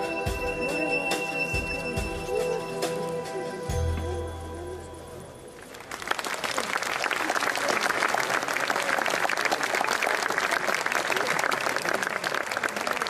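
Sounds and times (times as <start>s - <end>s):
violin piece: 0.0s - 4.8s
audience applauding: 5.6s - 13.0s.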